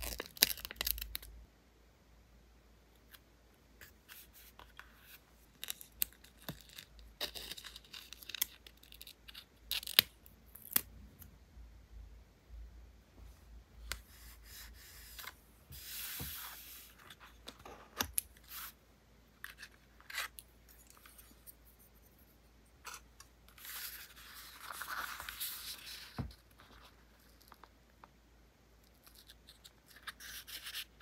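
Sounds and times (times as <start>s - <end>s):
paper rustling: 23.5s - 27.7s.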